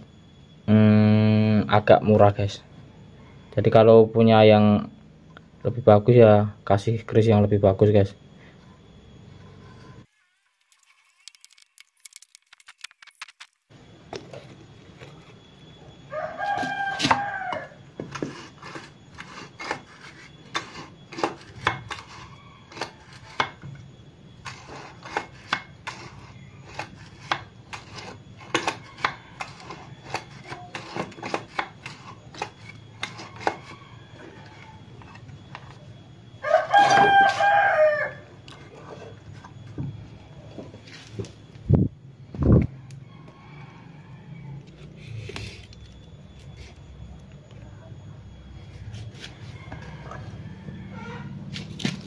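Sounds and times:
rooster crowing: 15.5 - 19.6, 21.2 - 24.0, 28.5 - 39.2, 42.6 - 45.2, 47.9 - 52.0.

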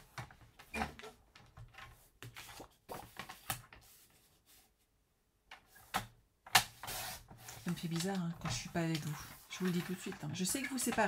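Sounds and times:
paper rustling: 1.4 - 4.7, 6.8 - 11.0
cardstock taps and scrapes: 6.6 - 11.0.

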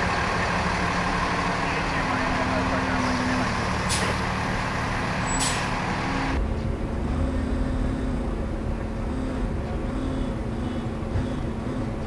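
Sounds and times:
street rumble: 0.0 - 12.0
truck engine driving past: 0.0 - 12.0.

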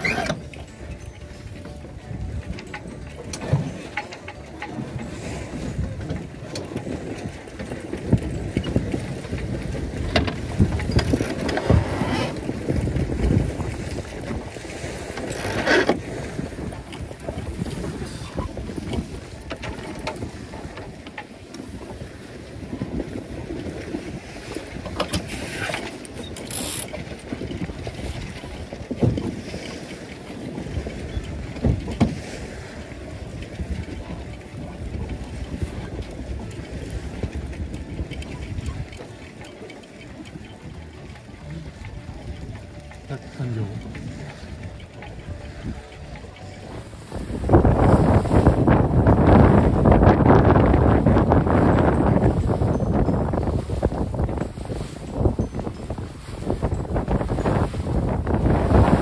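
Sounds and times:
water splashes: 0.0 - 59.0
wind and water rushing against hull: 0.0 - 59.0
wind noise on microphone: 0.0 - 59.0.

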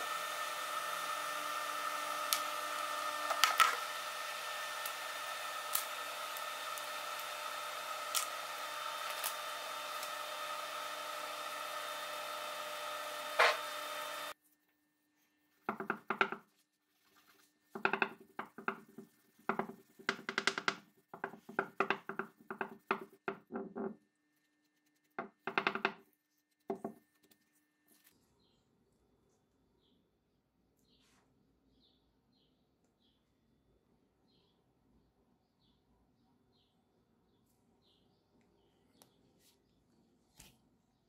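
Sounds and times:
induction hob hum and whine: 0.0 - 14.4.

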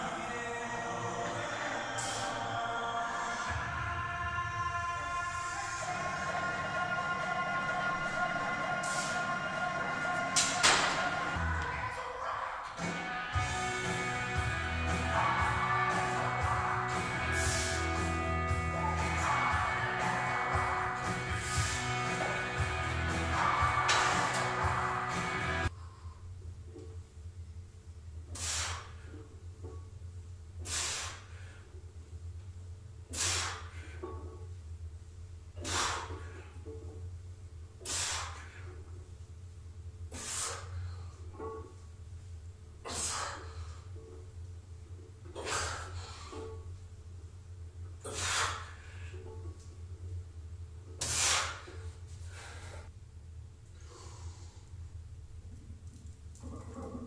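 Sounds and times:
low hum: 0.0 - 42.8
sharp hissing breaths: 16.9 - 26.2, 28.3 - 29.2, 30.6 - 31.7, 33.1 - 34.0, 35.6 - 36.6, 37.8 - 38.9, 40.1 - 41.3, 42.8 - 44.0, 45.4 - 46.5, 48.0 - 49.2, 51.0 - 52.9, 53.7 - 54.8.

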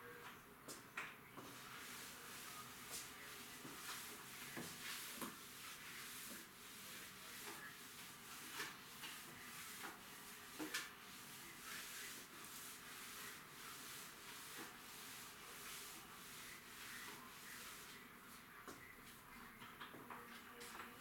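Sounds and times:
mop swishing on wet tiled floor: 1.4 - 20.8.

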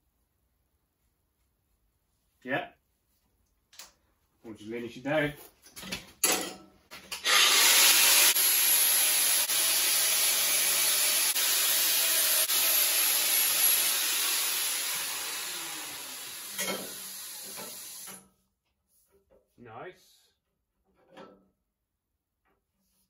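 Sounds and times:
angle grinder cutting steel: 7.1 - 18.2.

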